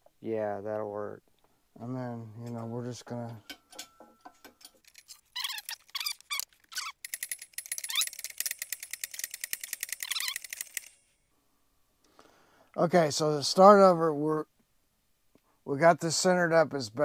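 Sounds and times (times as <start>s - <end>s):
rapid chattering clicks: 4.8s - 11.0s
sped-up chirping squeaks: 4.9s - 11.0s.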